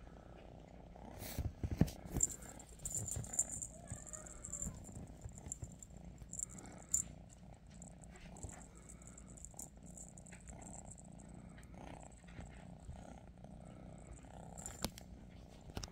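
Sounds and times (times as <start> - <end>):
kitten purring: 0.2 - 15.9
feather toy clicks and rustles: 2.1 - 7.1, 7.8 - 11.3, 14.6 - 15.0.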